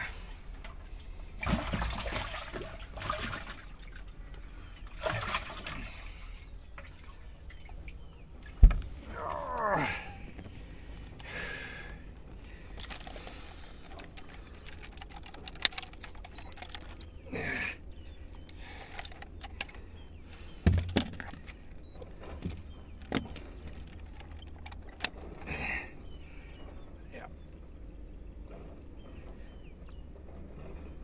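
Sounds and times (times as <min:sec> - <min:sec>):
fishing scale clicks and rattles: 0:12.8 - 0:17.2, 0:18.1 - 0:19.9.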